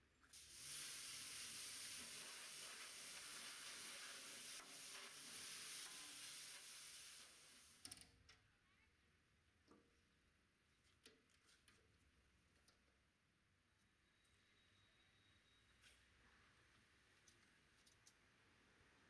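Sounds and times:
pressure washer spraying hiss: 0.4s - 7.8s.

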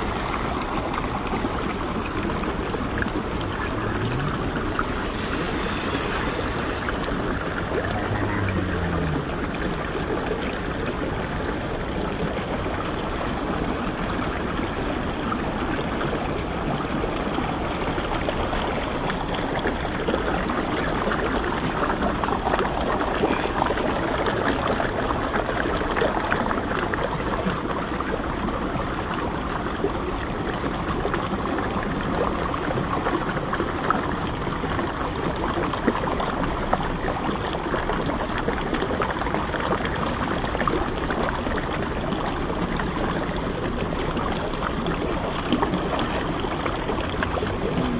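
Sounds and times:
stream flowing over rocks: 0.0s - 47.9s.

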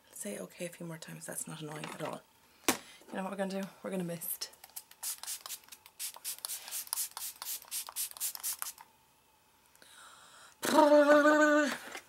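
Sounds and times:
spray bottle hissing: 4.8s - 8.8s.

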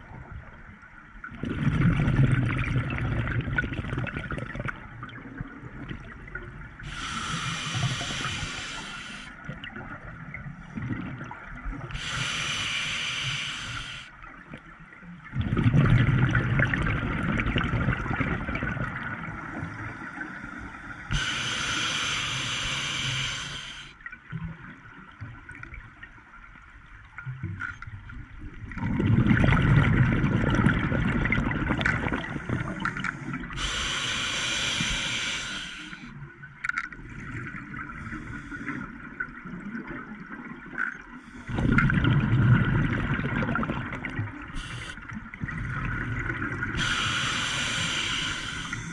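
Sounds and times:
rumbling exhaled bubbles: 1.3s - 6.8s, 15.3s - 19.7s, 28.5s - 33.5s, 41.5s - 47.1s
hissing regulator inhale: 6.8s - 9.4s, 11.9s - 14.1s, 19.6s - 24.0s, 32.3s - 36.2s, 38.0s - 38.9s, 44.5s - 45.0s, 46.8s - 48.9s.

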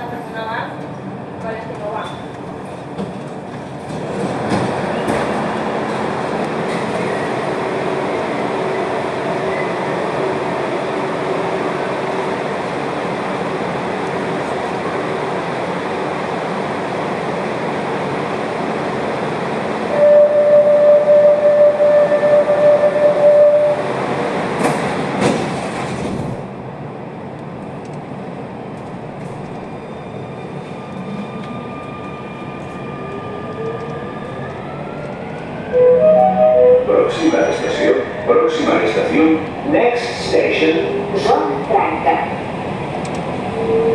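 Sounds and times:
metro train rolling: 0.0s - 43.9s
steady high tone: 35.7s - 37.4s.

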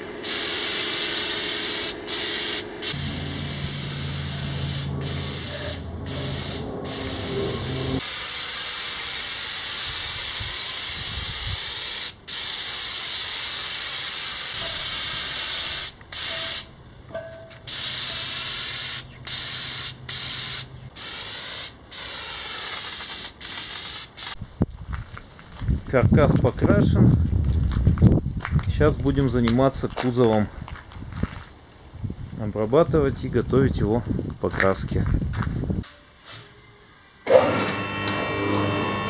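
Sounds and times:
paint spray gun hissing: 0.2s - 16.7s, 17.6s - 24.4s.

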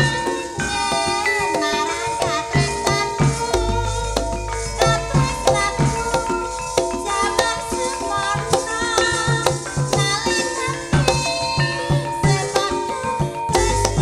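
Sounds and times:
gamelan music over loudspeakers: 0.0s - 14.0s
low drum beat: 2.6s - 10.2s, 13.5s - 14.0s.

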